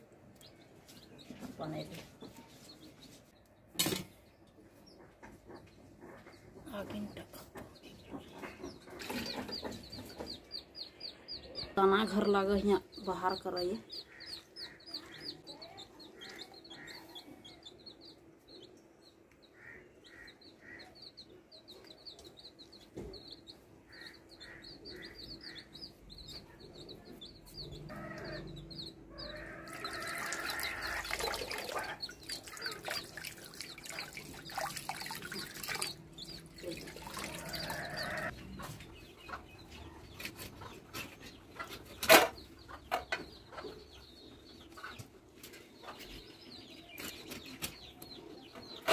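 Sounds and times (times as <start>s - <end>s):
chickens clucking: 0.1s - 34.5s, 35.1s - 48.9s.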